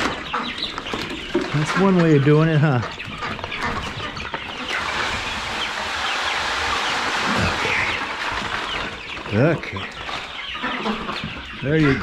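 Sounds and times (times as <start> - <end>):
chicks peeping: 0.0 - 12.0
feed pouring into a feeder: 4.6 - 9.0.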